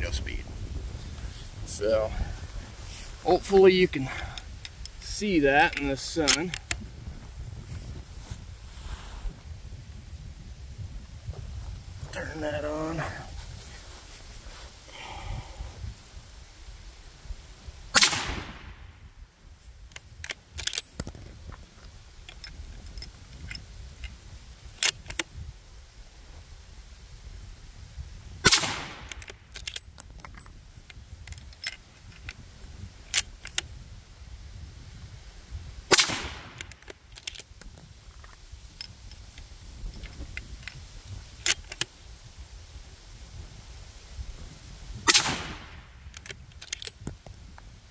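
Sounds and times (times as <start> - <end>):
rifle shot: 17.9 - 19.0, 28.4 - 29.2, 35.9 - 36.6, 45.0 - 45.9
light clicks and clinks: 19.9 - 24.2, 29.1 - 32.4, 36.6 - 40.8, 46.1 - 47.3.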